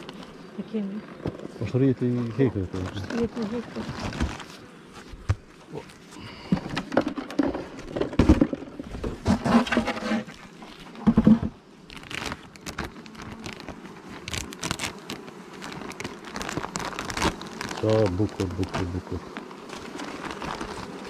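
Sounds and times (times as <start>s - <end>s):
wooden knocks and thumps: 6.5s - 10.2s, 11.0s - 11.6s
plastic foil crinkling: 11.8s - 21.0s.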